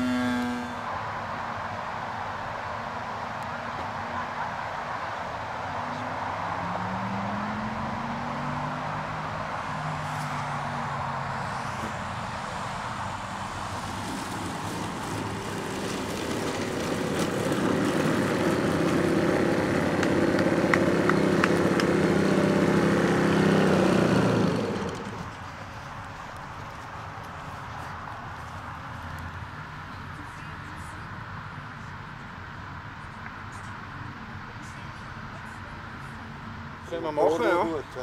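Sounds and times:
model aircraft petrol engine: 0:00.0 - 0:00.9, 0:13.7 - 0:25.6.

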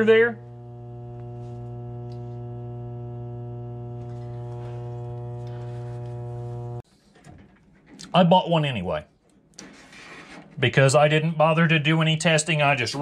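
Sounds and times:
gas furnace electrical hum: 0:00.0 - 0:06.8.

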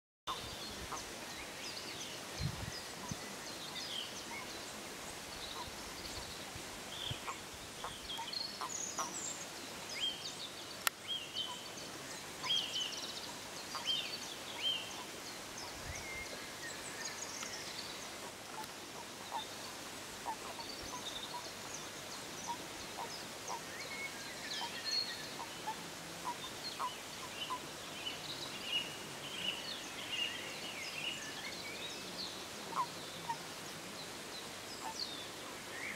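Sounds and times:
outdoor background hiss: 0:00.3 - 0:35.9.

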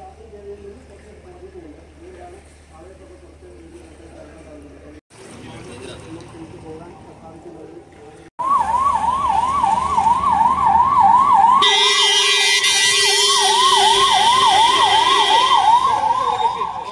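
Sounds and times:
ambulance siren yelp: 0:08.4 - 0:16.9.

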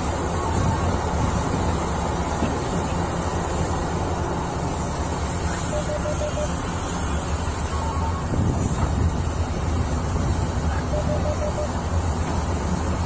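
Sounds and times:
excavator diesel engine running: 0:00.0 - 0:13.0
faint beeps: 0:05.5 - 0:06.7, 0:10.7 - 0:11.9.

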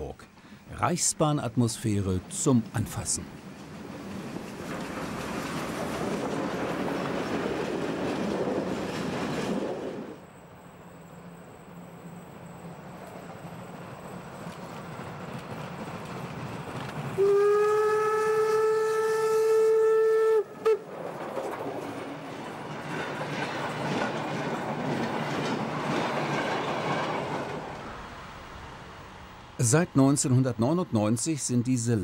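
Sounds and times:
train rumbling and clattering: 0:00.9 - 0:17.2, 0:20.8 - 0:32.0
steam whistle blast: 0:17.2 - 0:20.8.

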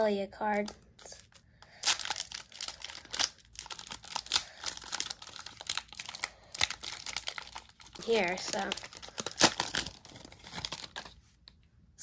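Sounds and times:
foil wrapper crinkling and tearing: 0:00.5 - 0:11.2.

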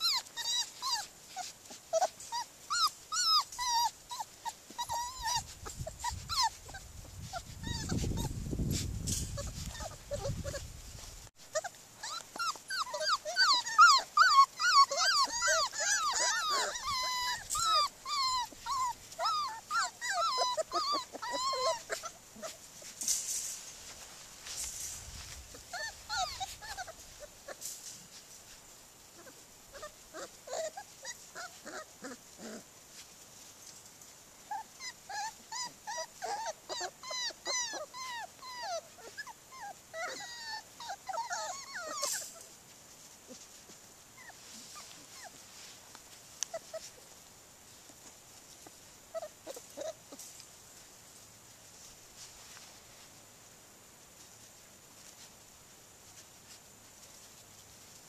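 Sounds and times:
puppies whining and whimpering: 0:00.0 - 0:10.8, 0:11.4 - 0:23.0, 0:25.5 - 0:27.6, 0:29.1 - 0:32.6, 0:34.5 - 0:42.6, 0:44.1 - 0:45.7, 0:46.4 - 0:47.1, 0:49.1 - 0:50.4.

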